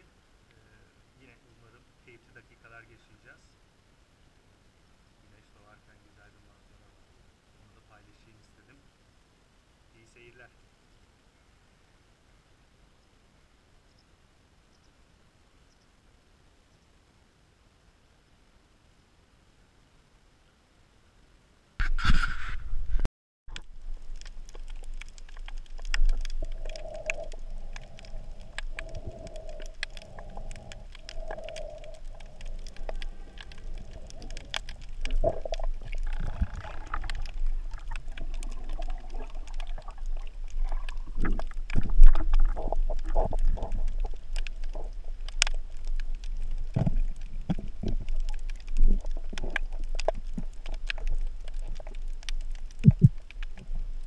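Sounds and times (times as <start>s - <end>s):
low underwater rumble: 22.4s - 54.0s
underwater clicks and crackles: 23.5s - 54.0s
low thumps: 52.8s - 53.2s.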